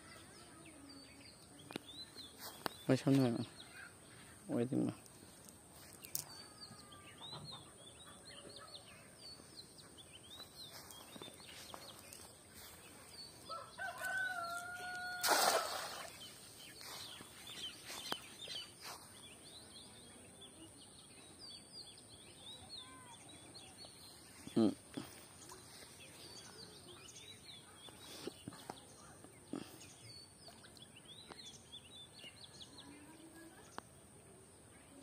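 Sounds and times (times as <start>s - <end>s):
small birds chirping: 0.0s - 35.0s
rooster crowing: 13.5s - 15.3s
net splashing into water: 14.9s - 16.3s.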